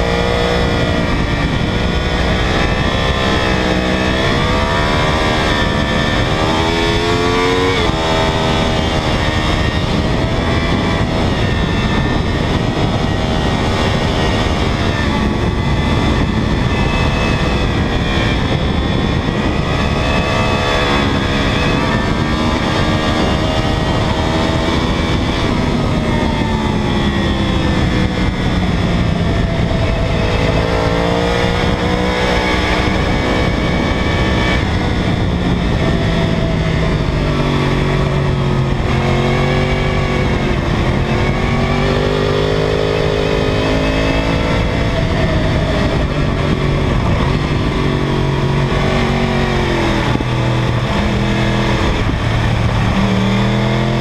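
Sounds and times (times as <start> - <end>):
motorcycle engine racing: 0.0 - 54.0
wind noise: 0.0 - 54.0.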